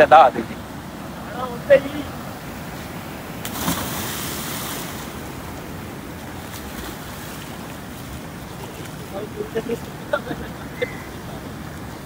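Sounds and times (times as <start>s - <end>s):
flowing water rushing: 0.0s - 12.0s
splash into water: 3.4s - 5.1s.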